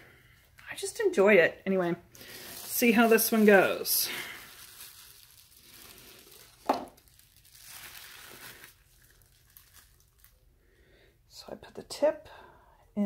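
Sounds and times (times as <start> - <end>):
plastic crinkling: 2.2 - 10.6.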